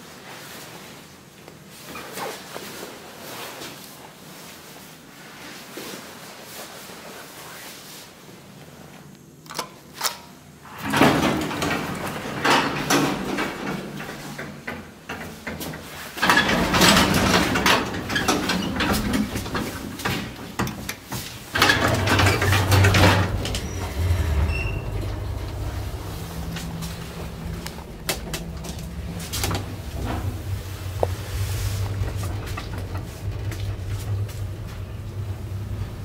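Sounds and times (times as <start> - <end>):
lift doors rattling: 10.7 - 36.0
lift machinery humming: 10.7 - 36.0.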